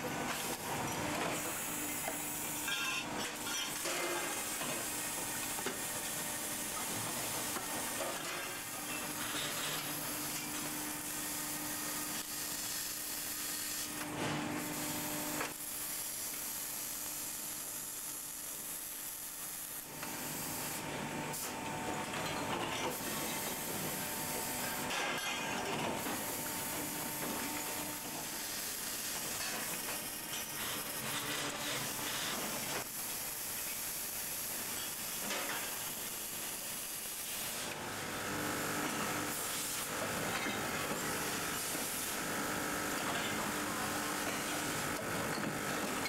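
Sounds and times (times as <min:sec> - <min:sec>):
welding hiss: 0:03.5 - 0:14.0, 0:14.6 - 0:21.5, 0:26.0 - 0:37.8, 0:38.5 - 0:40.0, 0:41.0 - 0:43.1.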